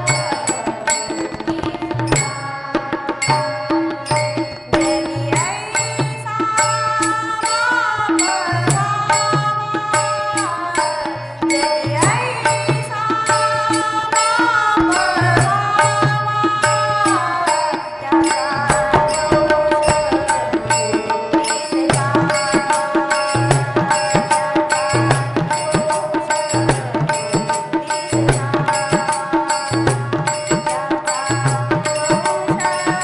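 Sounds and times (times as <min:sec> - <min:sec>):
hand cymbals struck: 0:00.0 - 0:33.0
woman singing: 0:00.0 - 0:33.0
harmonium chords: 0:06.2 - 0:33.0
drum beat: 0:18.1 - 0:29.1.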